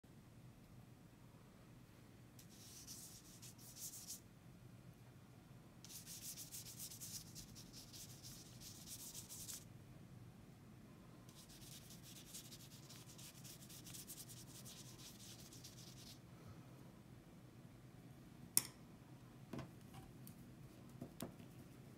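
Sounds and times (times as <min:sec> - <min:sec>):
paintbrush scrubbing on paper: 0:02.4 - 0:04.2, 0:05.9 - 0:09.6, 0:11.3 - 0:16.2.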